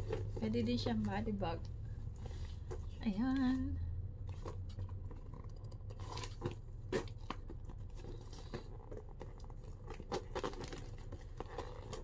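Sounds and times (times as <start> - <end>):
handbag rustling: 0.0 - 3.1, 6.0 - 12.0.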